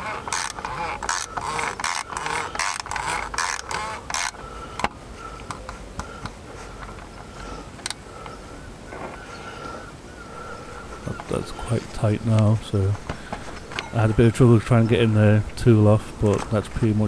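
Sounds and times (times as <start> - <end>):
wrench rasping strokes: 0.0 - 5.6.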